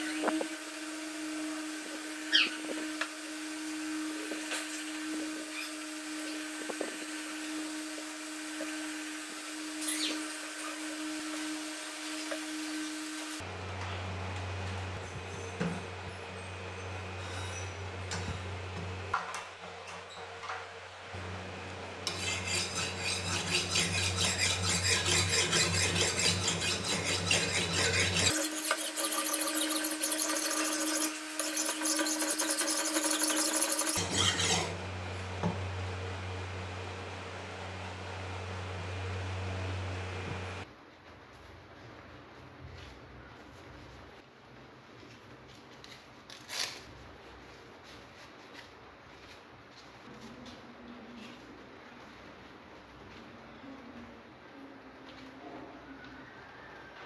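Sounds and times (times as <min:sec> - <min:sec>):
blade scraping on whetstone: 0:22.0 - 0:34.8.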